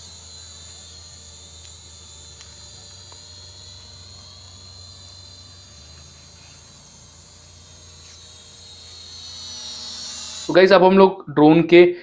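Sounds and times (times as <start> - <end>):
toy drone motors whining: 0.0 - 11.0.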